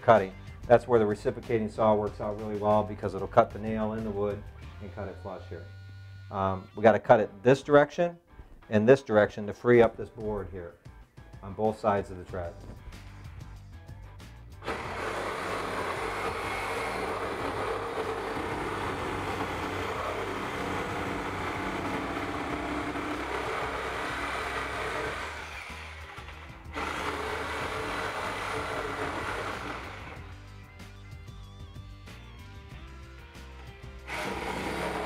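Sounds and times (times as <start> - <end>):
reciprocating saw cutting wood: 14.6 - 30.4, 34.0 - 35.0.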